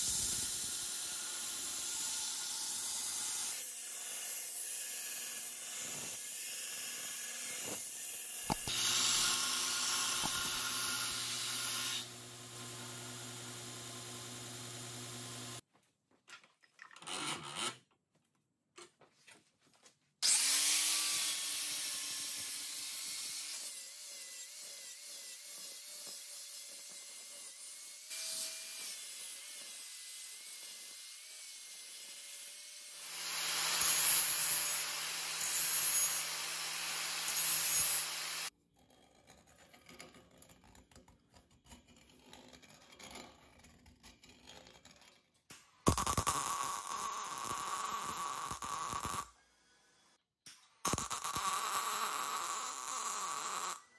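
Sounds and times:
angle grinder grinding steel: 0:00.0 - 0:15.6, 0:33.0 - 0:38.5, 0:50.8 - 0:53.9.

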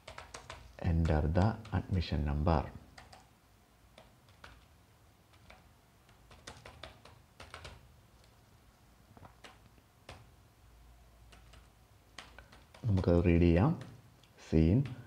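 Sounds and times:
computer keyboard typing: 0:00.0 - 0:02.1, 0:02.9 - 0:03.3, 0:03.9 - 0:08.4, 0:09.2 - 0:10.4, 0:11.2 - 0:15.0.

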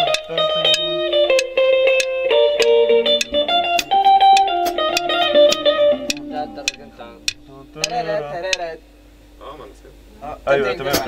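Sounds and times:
plucked guitar melody: 0:00.0 - 0:08.8.

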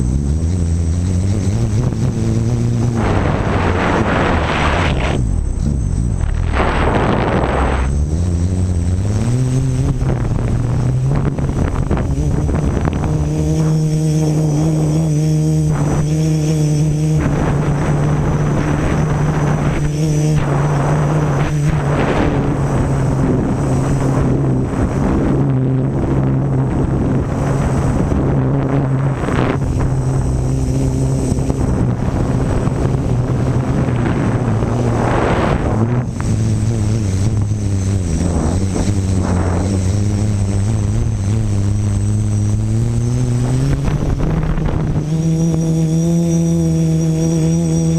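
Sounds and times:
drone propellers buzzing: 0:00.0 - 0:47.9.

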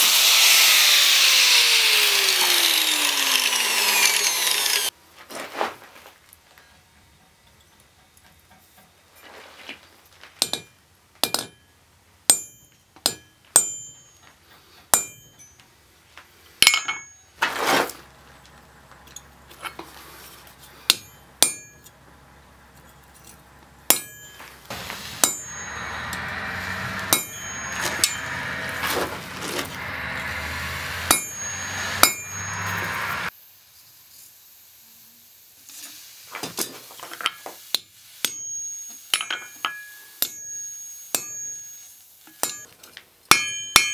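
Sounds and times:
hammer striking metal punch: 0:15.0 - 0:15.4, 0:20.9 - 0:21.9, 0:23.9 - 0:29.1, 0:29.7 - 0:33.3, 0:43.3 - 0:43.9
steady rushing noise with hum: 0:24.6 - 0:33.3.

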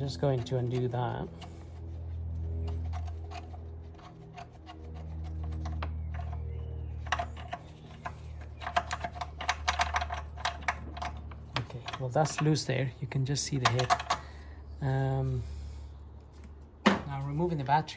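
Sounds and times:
ratchet clicking: 0:07.0 - 0:12.7.

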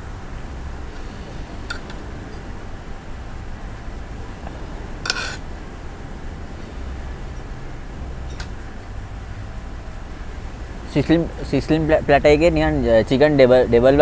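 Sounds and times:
low background rumble: 0:00.0 - 0:14.0
cutlery clinking on plate: 0:05.1 - 0:05.4.

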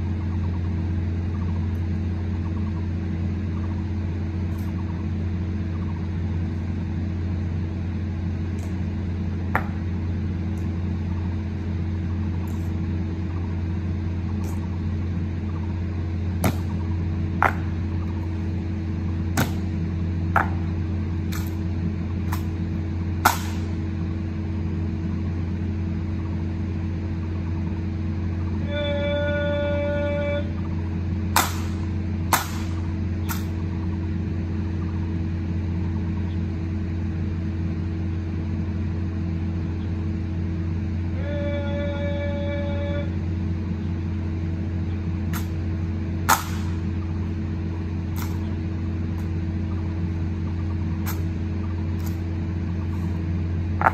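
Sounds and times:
steady low hum: 0:00.0 - 0:53.9.

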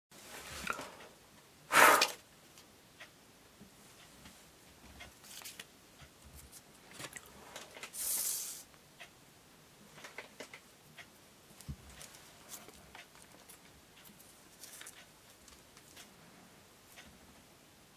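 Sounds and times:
person blowing breathy blasts: 0:01.7 - 0:02.2.

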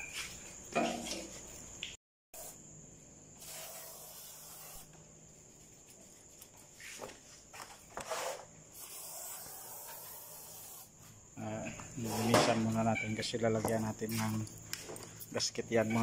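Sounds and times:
aerosol spray can hissing: 0:03.4 - 0:05.0, 0:08.1 - 0:10.9.

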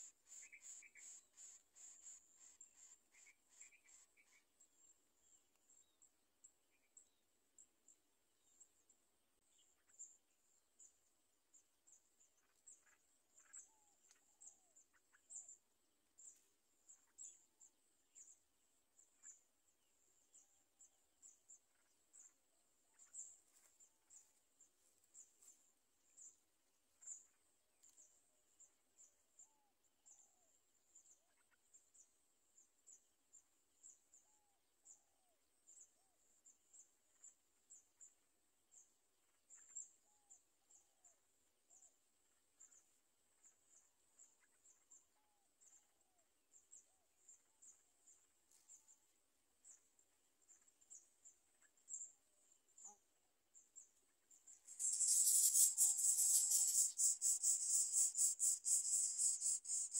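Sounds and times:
high-pitched chirps: 0:54.7 - 0:59.9.

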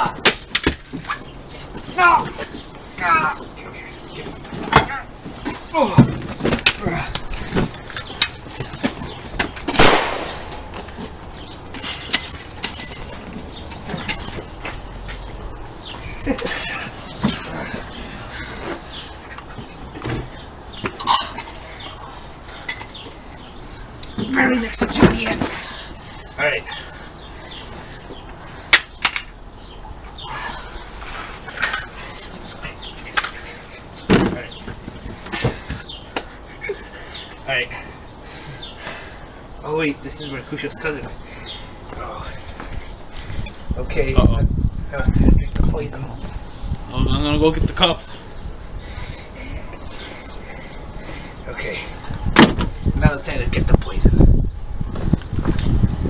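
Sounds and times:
loud sharp burst of noise: 0:09.8 - 0:11.1.

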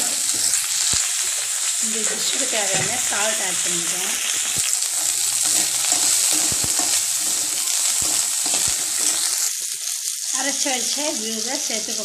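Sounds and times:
food sizzling in hot oil: 0:00.0 - 0:12.0
metal ladle scraping and knocking pan: 0:04.6 - 0:09.5.

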